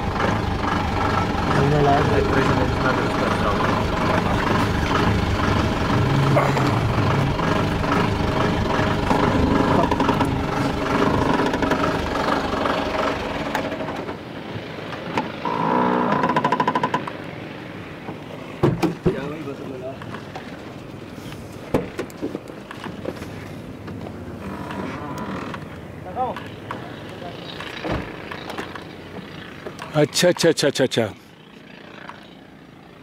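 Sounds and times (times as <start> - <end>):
bulldozer diesel engine: 0.0 - 19.9
rapid buzzing rattle: 0.1 - 14.2, 31.3 - 33.0.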